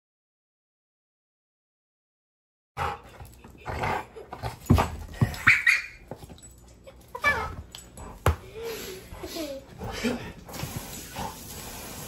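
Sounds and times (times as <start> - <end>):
squeaky toy squeaks: 5.4 - 6.0.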